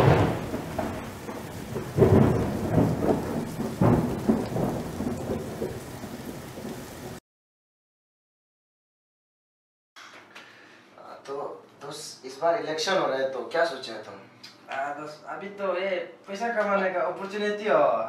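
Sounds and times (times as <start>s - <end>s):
steady rain: 0.0s - 7.2s
thunder rolling: 0.0s - 7.2s.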